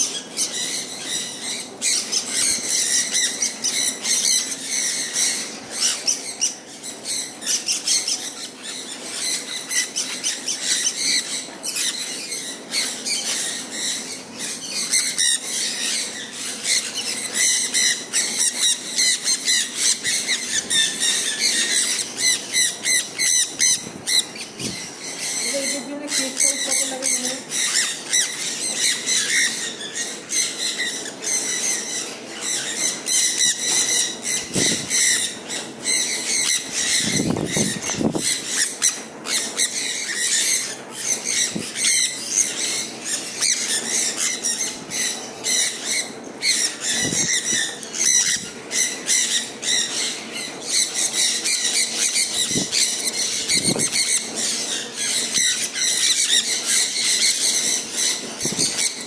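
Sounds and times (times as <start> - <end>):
parrots screeching: 0.0 - 59.0
wing flaps: 37.0 - 38.4.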